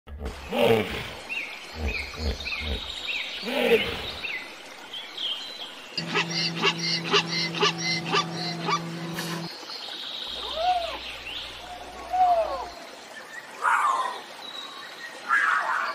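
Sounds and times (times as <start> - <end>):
small birds chirping: 0.5 - 14.8
rapid sharp calls: 6.0 - 9.5
steady low hum: 6.0 - 9.5.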